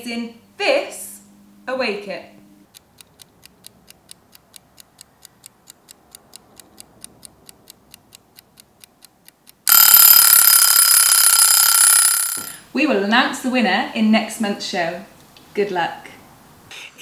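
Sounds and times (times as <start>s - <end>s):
clock ticking: 2.7s - 12.6s
alarm clock bell ringing: 9.7s - 12.6s.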